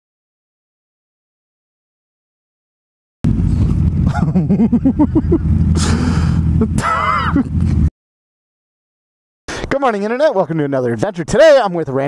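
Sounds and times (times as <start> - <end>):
motorcycle engines running: 3.3 - 7.9
man crying out: 4.1 - 7.6.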